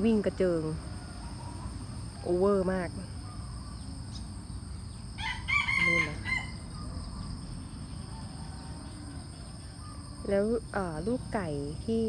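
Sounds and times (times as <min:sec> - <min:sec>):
high insect drone: 0:00.0 - 0:12.0
rooster crowing: 0:05.2 - 0:10.2.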